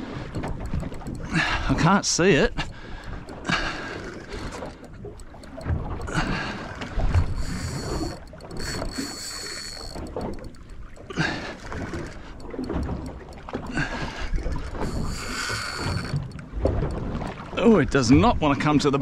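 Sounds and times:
water slapping against hull: 0.0 - 19.0
thin high whine: 7.4 - 10.6.

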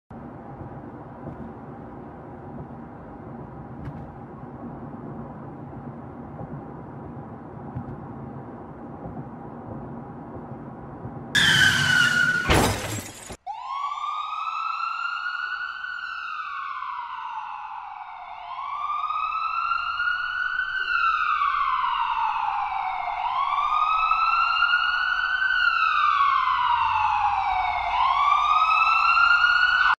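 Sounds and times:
emergency siren wailing: 11.4 - 12.7, 13.4 - 30.0
car crash: 11.4 - 13.4
tyres screeching: 11.4 - 13.4.

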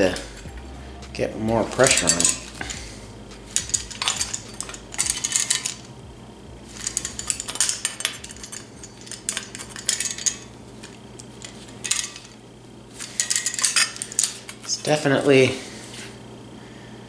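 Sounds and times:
low steady hum: 0.0 - 17.0
pliers clicking and clinking: 1.8 - 2.8, 3.6 - 5.9.

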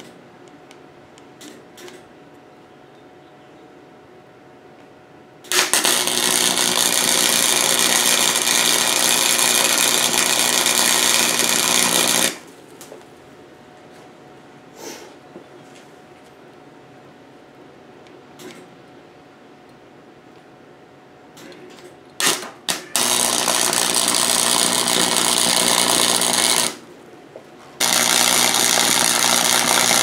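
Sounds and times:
welder arc crackling and buzzing: 5.4 - 12.6, 22.1 - 27.0, 27.8 - 30.0.

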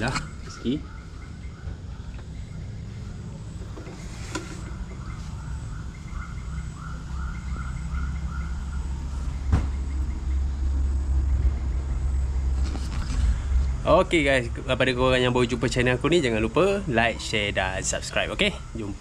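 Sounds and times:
bird calling: 0.0 - 13.8
low rumble: 8.4 - 15.9.

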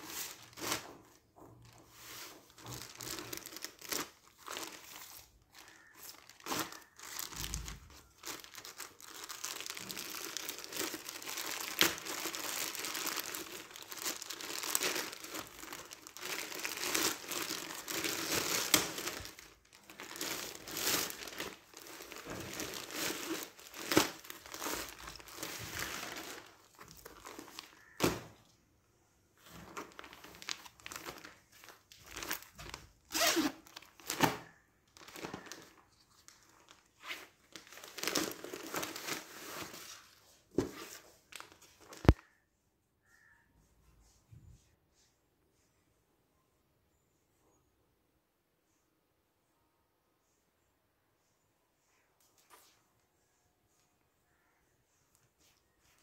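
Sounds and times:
plastic bag rustling: 0.0 - 28.4, 29.4 - 42.2
plastic mailer bag crinkling: 1.9 - 28.3, 29.4 - 40.0.

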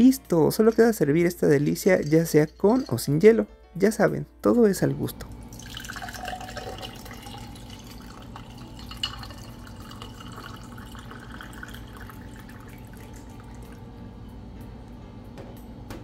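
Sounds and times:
ice clinking in glass: 1.8 - 3.3, 5.5 - 13.8
liquid pouring into a glass: 5.2 - 14.0.

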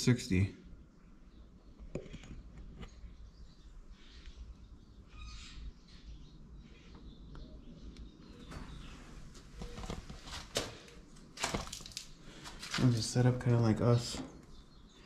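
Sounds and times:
faint bird chirps: 0.4 - 10.1
rustling: 8.7 - 13.2.

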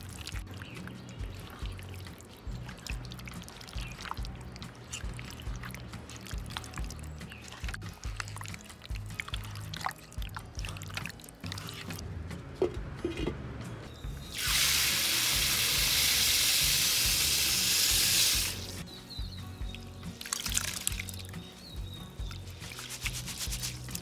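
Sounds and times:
rice pouring into water: 14.3 - 18.6
hands swishing rice in water: 22.3 - 24.0.

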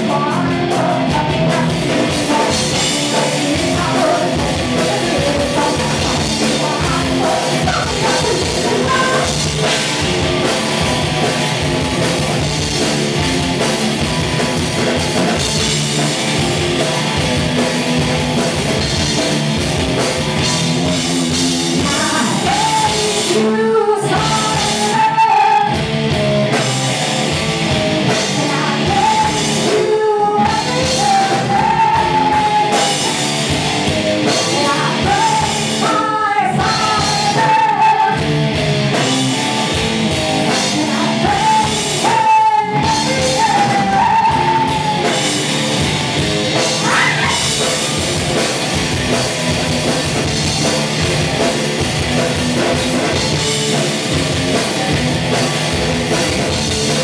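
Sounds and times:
woman singing: 0.0 - 9.6, 21.7 - 25.8, 28.0 - 33.6, 34.2 - 38.3, 40.4 - 45.5, 46.6 - 47.6
rock band playing live: 0.0 - 57.0.

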